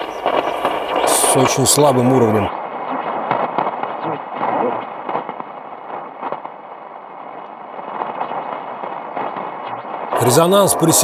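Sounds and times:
faint radio broadcast: 0.0 - 3.2, 3.8 - 5.5, 7.8 - 11.0
shortwave radio static: 0.0 - 11.0.

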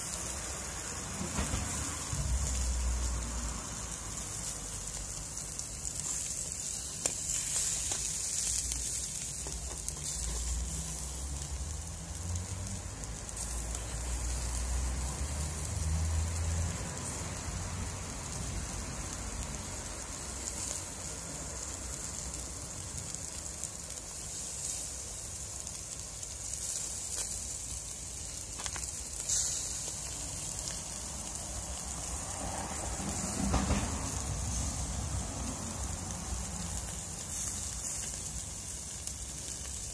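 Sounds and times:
crackling coals: 0.0 - 39.9
fish sizzling over charcoal: 0.0 - 39.9.

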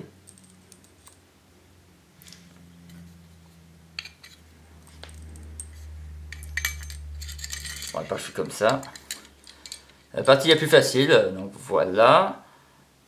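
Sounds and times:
low hum: 0.0 - 10.0
metallic clicks and scrapes: 4.0 - 10.4.

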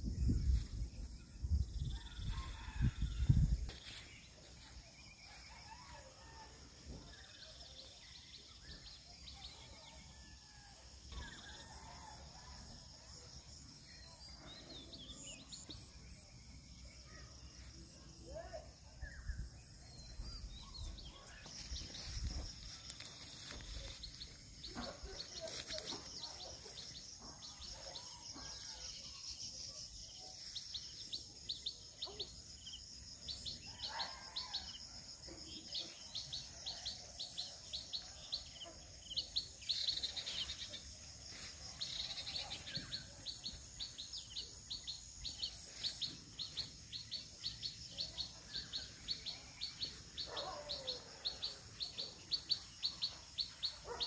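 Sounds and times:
birds chirping: 35.6 - 54.0.

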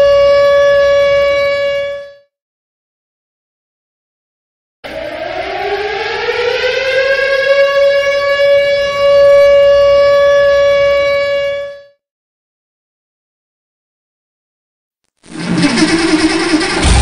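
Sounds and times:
siren winding up: 4.8 - 11.5, 15.2 - 17.0.

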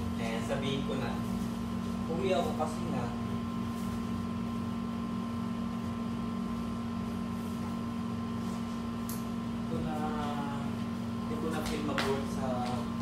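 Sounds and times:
air conditioner humming: 0.0 - 13.0.

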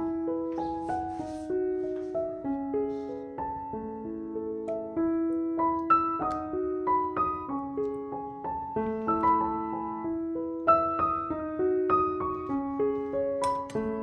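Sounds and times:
piano melody: 0.0 - 14.0.

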